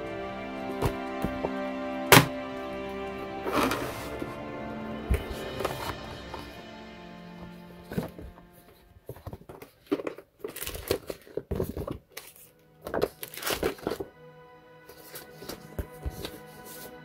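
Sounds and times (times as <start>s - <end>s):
background music: 0.0s - 9.7s, 10.6s - 17.0s
paper sheets rustling: 7.9s - 14.1s, 14.9s - 17.0s.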